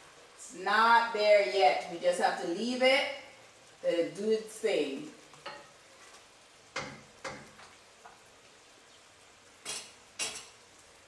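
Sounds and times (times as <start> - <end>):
wooden spoon knocking on pot: 6.7 - 7.7.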